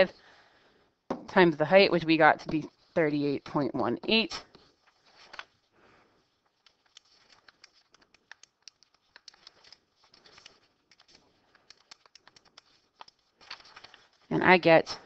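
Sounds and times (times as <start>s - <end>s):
calculator keys clicking: 6.9s - 13.2s.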